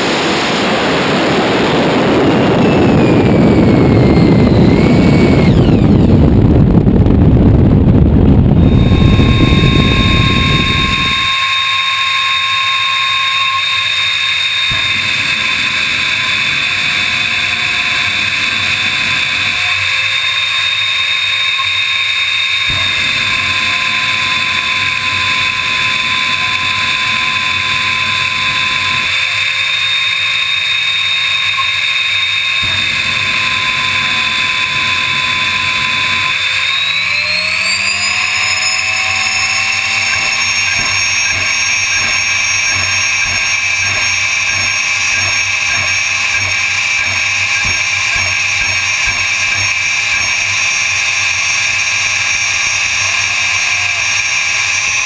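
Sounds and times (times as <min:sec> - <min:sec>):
drag car engine running: 0:00.0 - 0:55.0.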